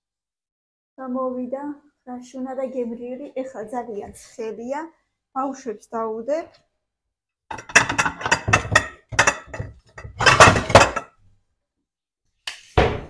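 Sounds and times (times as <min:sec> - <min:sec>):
cutlery clinking against dishes: 0:07.5 - 0:11.1.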